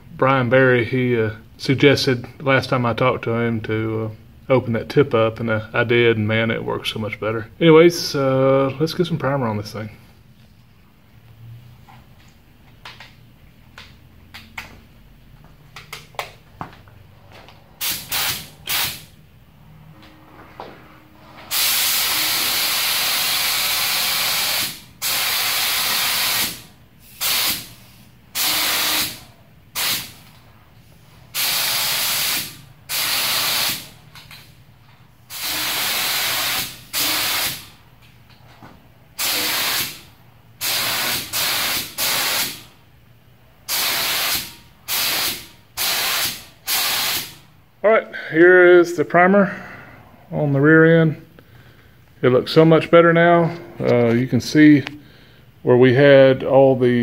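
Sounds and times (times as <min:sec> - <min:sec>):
spray gun hissing: 0:17.8 - 0:19.1, 0:21.5 - 0:30.2, 0:31.3 - 0:34.0, 0:35.3 - 0:37.7, 0:39.2 - 0:40.0, 0:40.6 - 0:42.7, 0:43.7 - 0:47.4.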